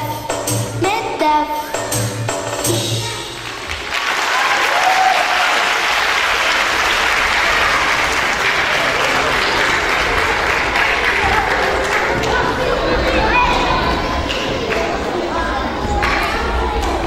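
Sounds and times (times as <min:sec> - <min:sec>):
audience applauding: 0:03.4 - 0:15.0.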